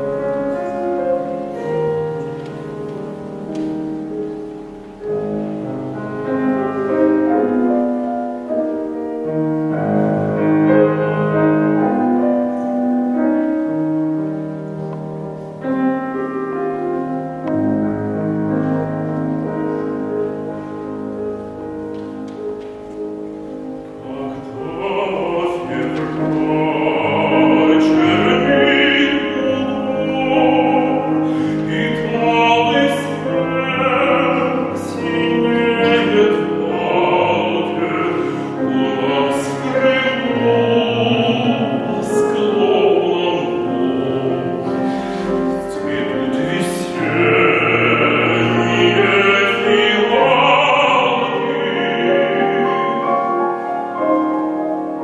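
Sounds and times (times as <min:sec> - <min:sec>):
grand piano accompaniment: 0:00.0 - 0:55.0
man singing operatically: 0:24.0 - 0:44.8, 0:45.4 - 0:53.4.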